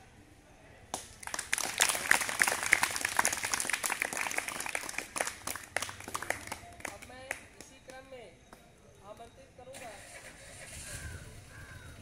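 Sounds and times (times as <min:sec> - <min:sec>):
audience applauding: 0:01.2 - 0:07.4.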